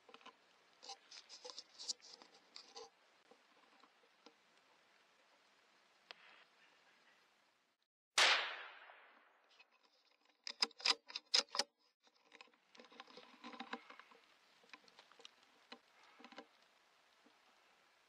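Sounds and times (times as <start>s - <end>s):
rustling and crackling: 0.0s - 7.3s, 9.4s - 18.0s
gunshot: 8.2s - 9.4s.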